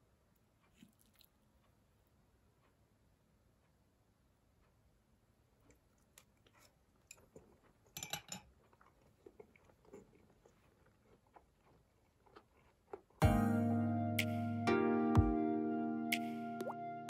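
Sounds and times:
person chewing food: 0.6s - 2.8s, 5.5s - 13.3s
background music: 13.2s - 17.0s.

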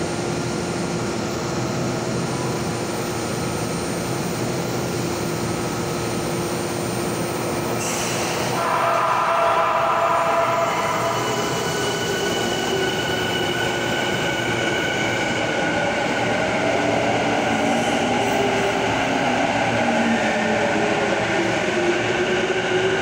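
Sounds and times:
train wheels rumbling on rail: 0.0s - 23.0s
train whining tones: 7.8s - 23.0s.

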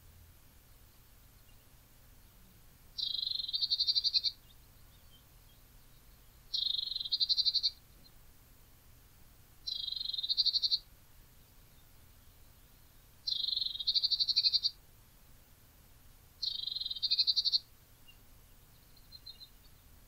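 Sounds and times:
songbird buzzy call and trill: 0.0s - 20.0s.

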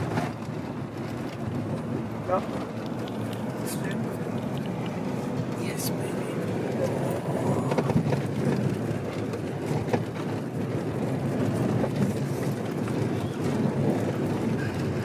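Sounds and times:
van engine and tyres rumbling: 0.0s - 15.0s.

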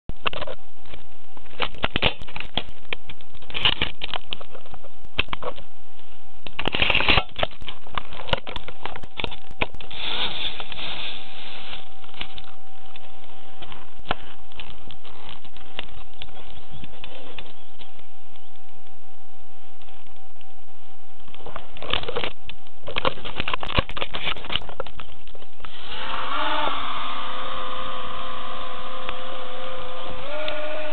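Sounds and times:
crackling and clicks: 0.1s - 9.9s, 11.8s - 19.0s, 19.7s - 20.6s, 21.2s - 25.7s
electric motors whining: 25.6s - 30.9s.

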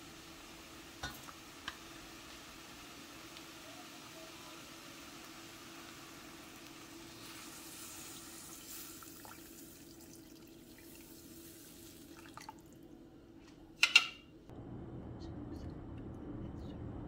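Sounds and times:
water pouring and splashing: 7.0s - 12.8s.

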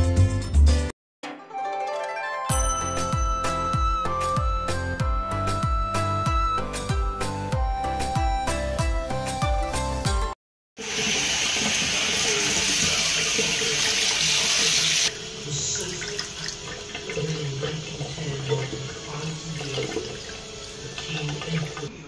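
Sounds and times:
tap water splashing in sink: 10.9s - 15.1s, 15.8s - 21.9s.

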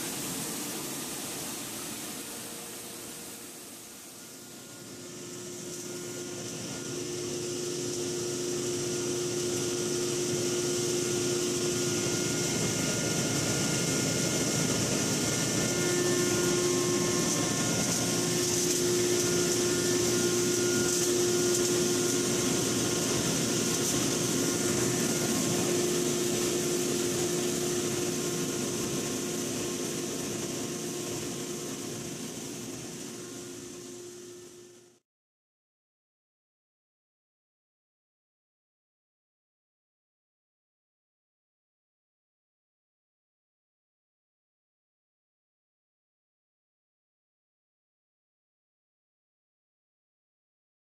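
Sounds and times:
wire granulator whirring: 0.0s - 35.0s.

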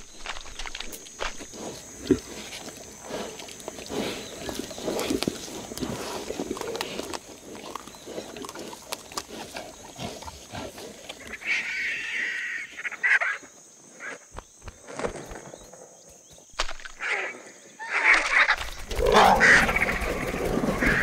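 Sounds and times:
cheetahs snarling and grunting: 1.5s - 12.6s, 17.0s - 21.0s.

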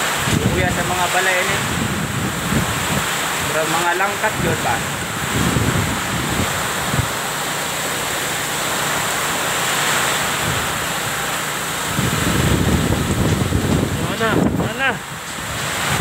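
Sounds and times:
wind gusts buffeting microphone: 0.0s - 7.3s, 10.3s - 11.1s, 11.8s - 16.0s
wind and heavy rain rushing: 0.0s - 16.0s.

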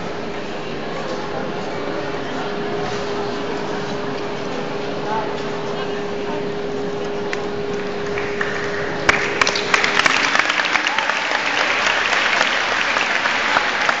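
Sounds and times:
crowd noise in hall: 0.0s - 14.0s
crowd applause: 7.8s - 14.0s
crowd cheering: 8.0s - 14.0s.

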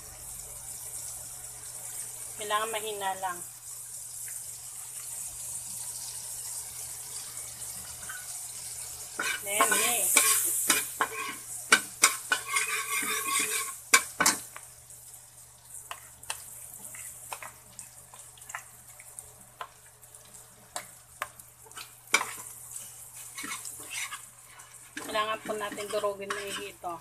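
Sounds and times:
margarine sizzling: 0.0s - 27.0s
metal spatula scraping a wok: 9.2s - 14.4s, 21.7s - 26.8s.

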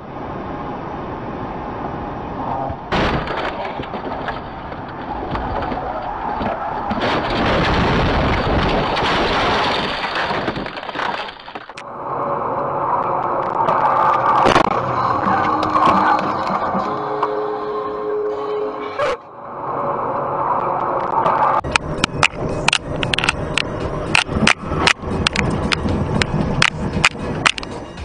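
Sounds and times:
road noise: 0.0s - 28.0s
loud car crash: 2.7s - 11.8s
crunching and breaking debris: 2.9s - 11.9s.

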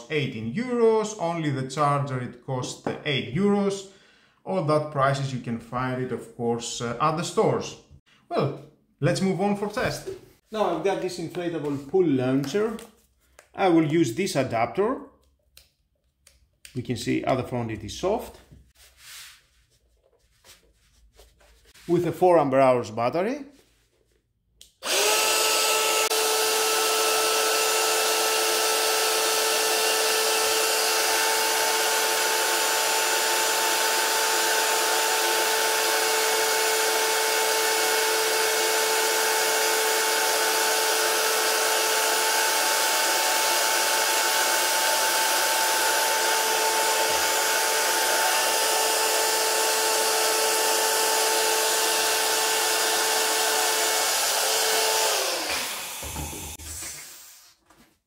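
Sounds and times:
air pump running: 24.8s - 57.4s.

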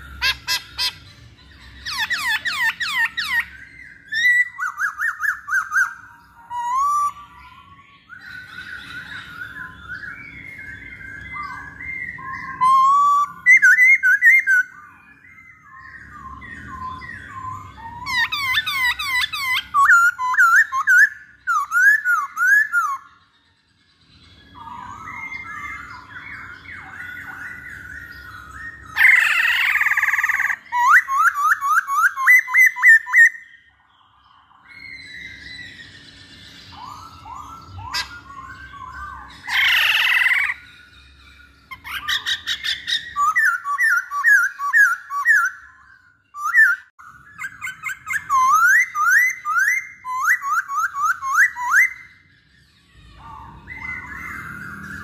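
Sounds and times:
bird harsh squawk: 0.0s - 23.2s, 24.4s - 33.7s, 34.4s - 55.0s
bird whistled song: 0.0s - 55.0s.

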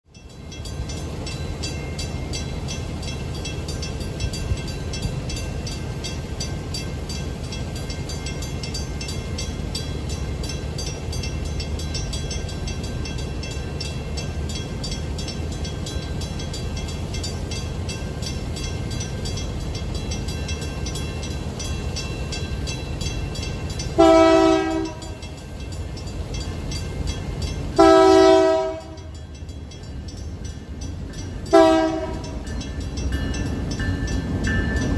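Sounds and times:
crossing warning bell ringing: 0.1s - 34.9s
locomotive horn blasts: 24.0s - 25.2s, 27.8s - 29.2s, 31.5s - 32.4s.

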